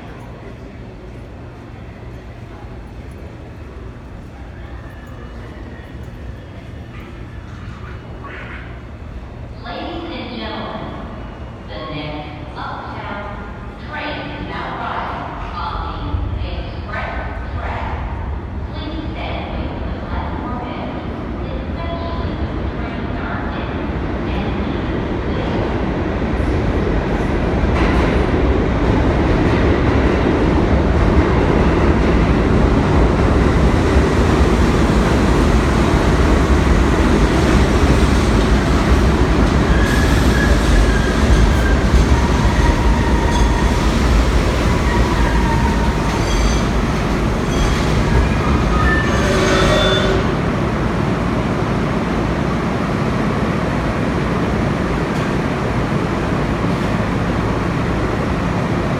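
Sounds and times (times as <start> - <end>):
train wheels rumbling on rail: 0.0 - 58.9
train brakes squealing: 39.6 - 43.9, 44.8 - 46.8, 47.4 - 50.4.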